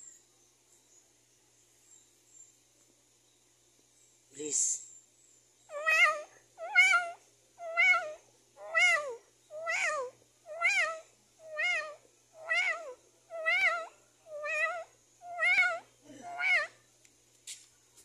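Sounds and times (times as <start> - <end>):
kitten meowing: 5.7 - 16.7.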